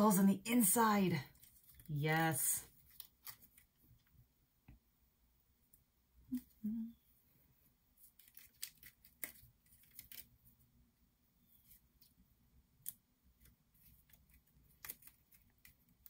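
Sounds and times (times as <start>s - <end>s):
paper clicks and rustles: 2.7s - 4.1s, 8.0s - 10.4s, 12.8s - 16.0s.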